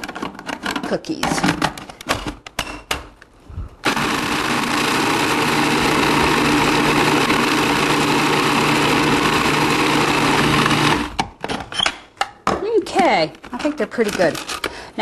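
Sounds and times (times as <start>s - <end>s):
food processor grinding: 3.8s - 11.2s.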